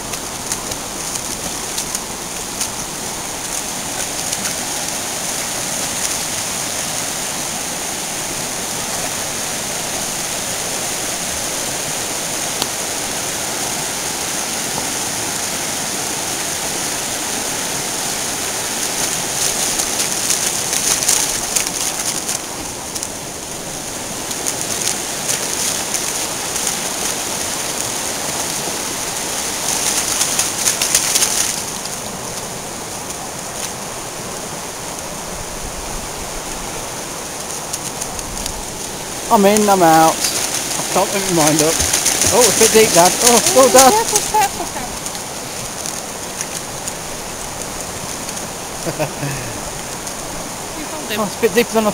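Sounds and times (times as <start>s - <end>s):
stream rushing over stones: 0.0s - 51.9s
loud crackly noise: 16.9s - 33.7s, 37.2s - 50.9s.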